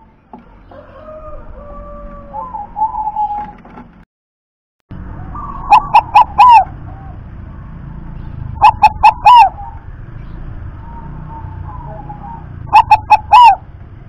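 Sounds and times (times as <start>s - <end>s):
dove cooing: 0.5s - 3.6s, 5.2s - 7.3s, 8.5s - 9.9s, 10.8s - 13.7s.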